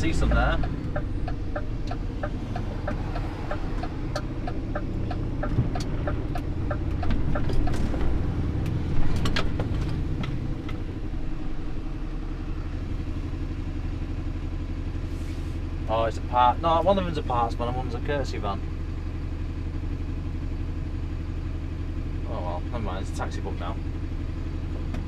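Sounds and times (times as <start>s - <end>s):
knocks and rattles in cab: 0.0s - 11.0s
turn indicator ticking: 0.0s - 12.0s
diesel engine inside truck cab: 0.0s - 25.0s.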